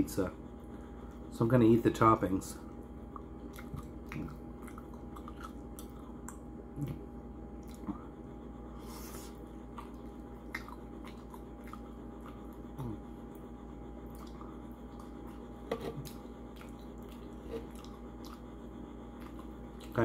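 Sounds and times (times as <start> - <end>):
low hum: 0.0 - 20.0
man chewing food: 2.6 - 20.0.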